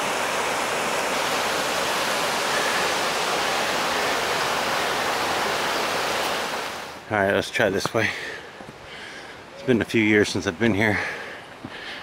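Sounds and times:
waterfall rushing: 0.0s - 7.1s.

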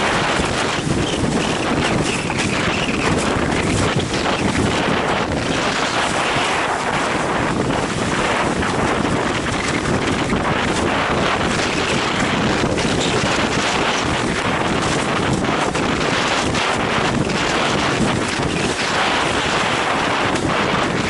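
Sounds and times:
board skimming over choppy water: 0.0s - 21.0s
wind buffeting microphone: 0.0s - 21.0s.

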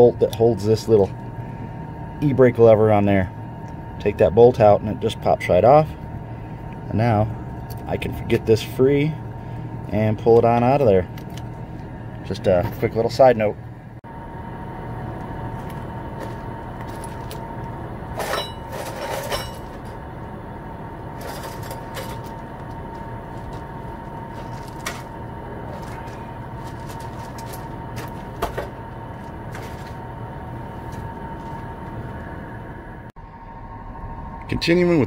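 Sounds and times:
steady background hum: 0.0s - 35.0s
metal clanks and knocks: 18.1s - 20.0s, 21.1s - 30.0s.

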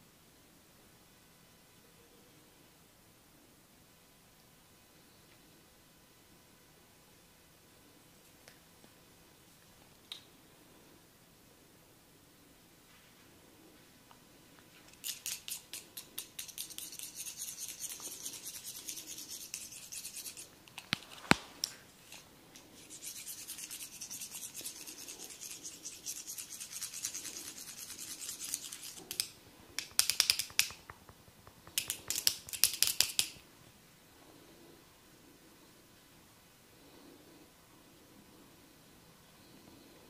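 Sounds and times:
metal rods scratching hair: 14.9s - 20.9s, 22.8s - 30.9s.

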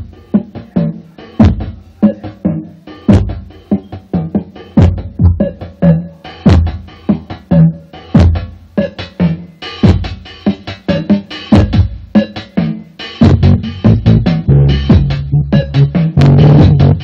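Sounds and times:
drum machine electronic beat: 0.0s - 17.0s
bass line: 13.2s - 17.0s.

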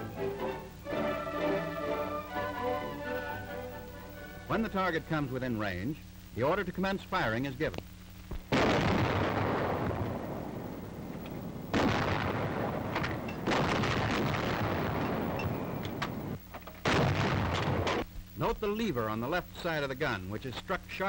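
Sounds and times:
anti-aircraft guns firing: 8.5s - 18.1s.

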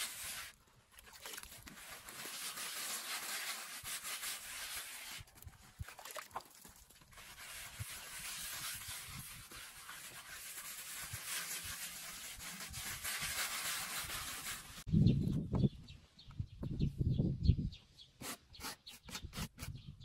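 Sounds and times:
scratchy rubbing on rough surface: 0.0s - 0.6s, 1.7s - 5.3s, 7.1s - 14.9s.

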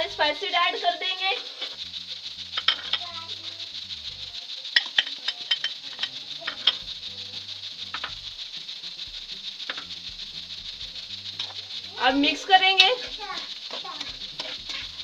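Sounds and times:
food sizzling in hot oil: 0.0s - 15.0s
metal spoon clicking on pan: 4.6s - 8.2s, 11.3s - 15.0s.

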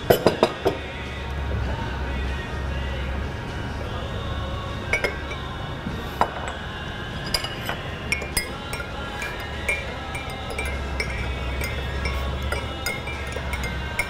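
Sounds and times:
teaspoons clinking against cups: 0.0s - 0.8s, 4.9s - 5.6s, 6.2s - 14.0s
soft background music: 0.0s - 14.0s.

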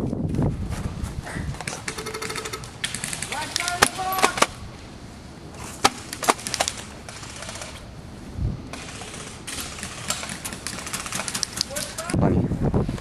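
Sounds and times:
airsoft gun clicking snaps: 2.8s - 4.0s.

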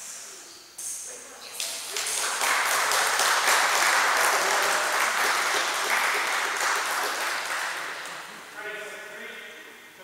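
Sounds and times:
hand clapping applause: 1.5s - 8.5s.

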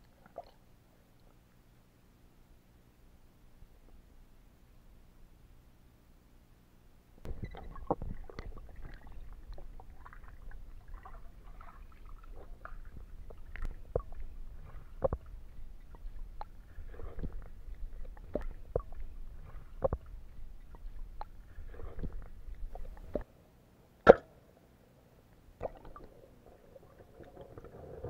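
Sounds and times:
underwater rumble and gurgling: 7.2s - 23.2s, 25.6s - 28.0s.

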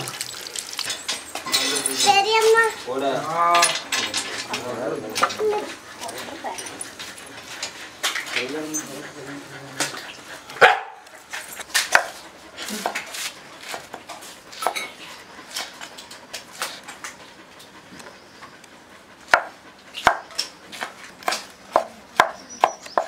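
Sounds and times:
knife chopping on wooden board: 19.3s - 23.0s.

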